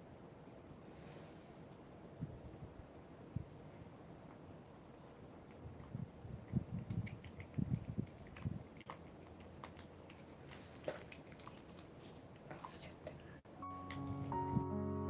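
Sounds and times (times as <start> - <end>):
cat licking wet clicks: 5.4 - 13.3.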